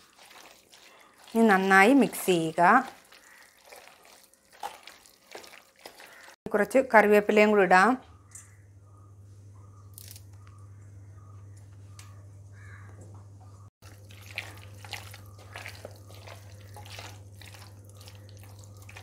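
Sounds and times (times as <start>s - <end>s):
hand squelching in wet paste: 0.0s - 6.4s, 13.8s - 19.0s
steady low hum: 8.0s - 19.0s.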